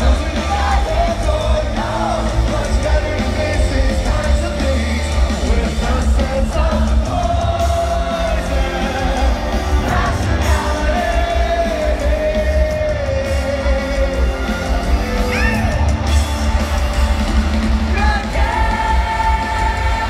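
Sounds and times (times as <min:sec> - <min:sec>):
crowd yelling: 0:00.0 - 0:20.0
live rock band playing: 0:00.0 - 0:20.0.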